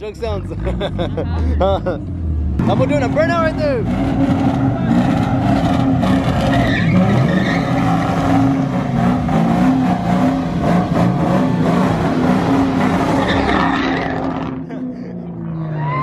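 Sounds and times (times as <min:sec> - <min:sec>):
car engine at high revs: 0:00.3 - 0:15.9
tyres spinning on asphalt: 0:02.0 - 0:14.7.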